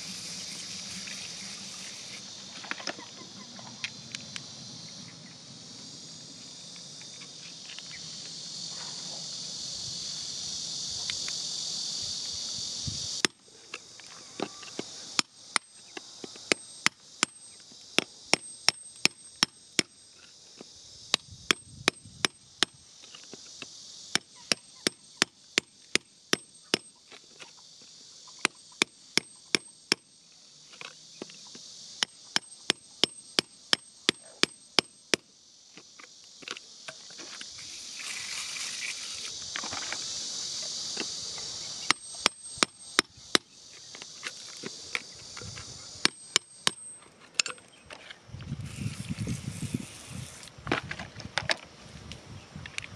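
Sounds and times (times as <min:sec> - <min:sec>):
high insect buzz: 0:00.0 - 0:52.9
metal tool chipping stony soil: 0:37.4 - 0:39.4.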